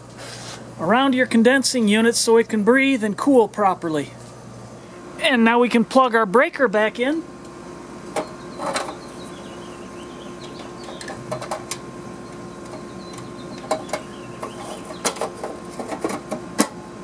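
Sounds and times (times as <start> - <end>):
steady hum: 0.0 - 17.0
metal cover snapping shut: 13.6 - 16.8.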